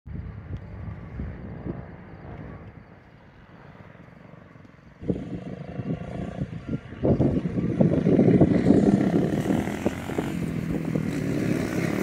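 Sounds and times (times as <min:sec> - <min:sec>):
dirt bike engine running: 0:05.0 - 0:12.0.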